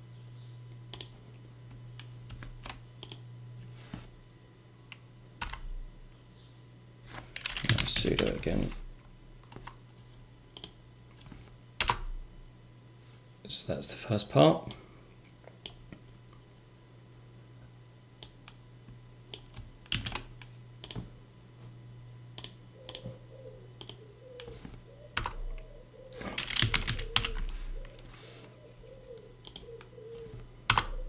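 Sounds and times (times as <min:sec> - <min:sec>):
computer keyboard typing: 0:05.4 - 0:05.7, 0:07.4 - 0:08.5, 0:19.4 - 0:21.0, 0:25.2 - 0:28.0, 0:29.4 - 0:29.9, 0:30.7 - 0:30.9.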